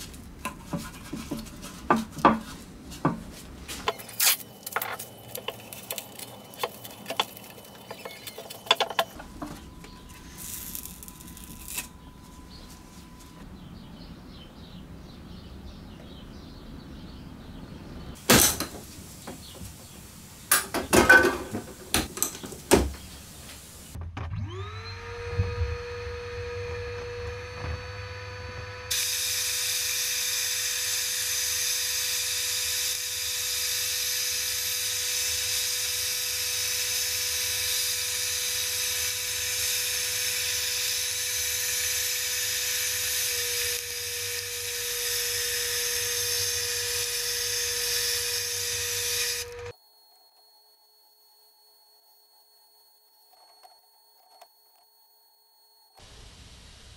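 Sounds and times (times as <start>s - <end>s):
electric tool motor whine: 3.8s - 13.2s, 24.3s - 55.9s
parts knocking: 4.7s - 10.0s
tool hissing on metal: 28.9s - 49.7s.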